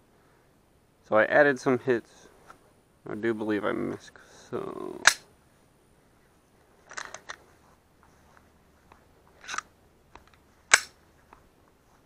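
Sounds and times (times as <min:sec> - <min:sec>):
pistol handling clicks and rustles: 0:05.0 - 0:05.2, 0:06.7 - 0:07.6, 0:08.3 - 0:11.5.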